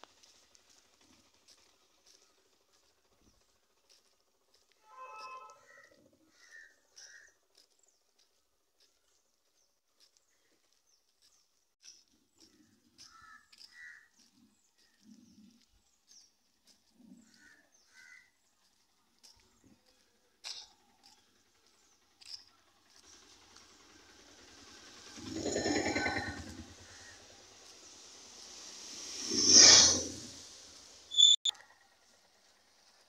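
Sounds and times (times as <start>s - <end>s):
faint crows cawing: 3.9s - 8.4s, 12.4s - 15.4s, 16.1s - 21.3s, 26.0s - 27.6s.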